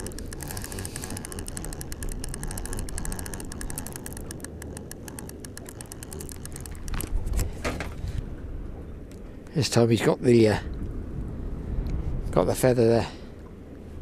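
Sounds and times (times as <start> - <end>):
fishing reel gears ticking: 0.0 - 7.2.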